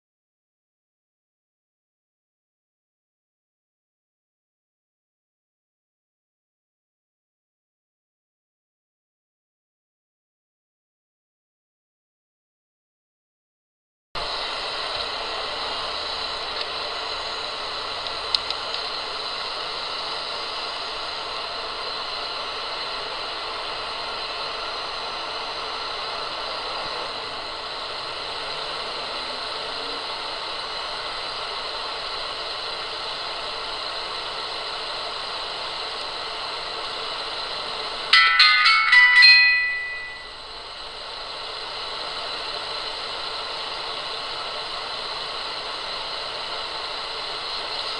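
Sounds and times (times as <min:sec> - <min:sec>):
electronic beeping chime: 0:38.2 - 0:40.4.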